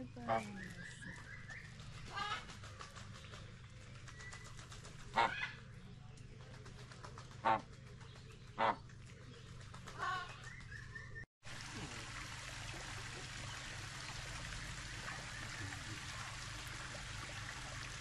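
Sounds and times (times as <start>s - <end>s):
birds calling: 0.0s - 11.2s.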